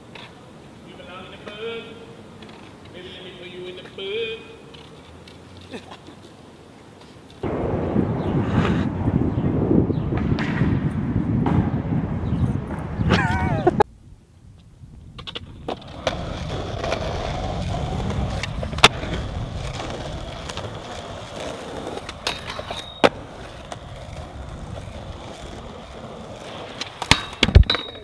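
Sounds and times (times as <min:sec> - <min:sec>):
skateboard wheels rolling on concrete: 0:00.0 - 0:28.0
skateboard clacks: 0:15.2 - 0:28.0.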